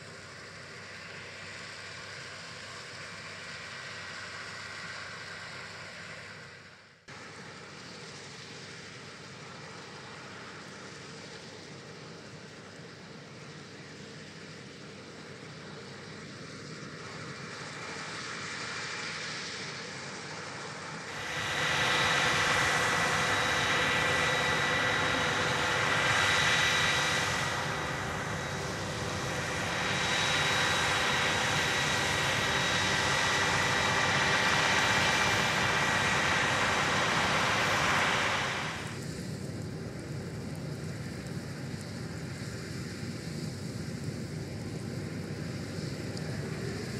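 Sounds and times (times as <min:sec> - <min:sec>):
high machinery whine: 0:00.0 - 0:46.9
combine harvester running: 0:07.2 - 0:39.5.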